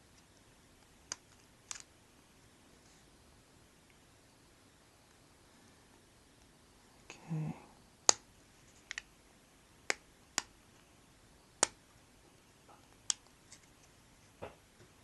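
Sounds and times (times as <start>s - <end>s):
small parts clicking together: 0.2s - 1.9s.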